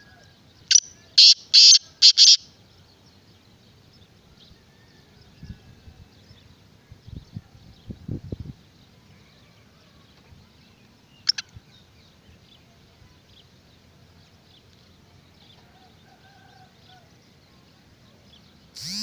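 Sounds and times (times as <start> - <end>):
distant bird chirps: 0.0 - 5.6, 9.9 - 12.6, 18.3 - 19.0.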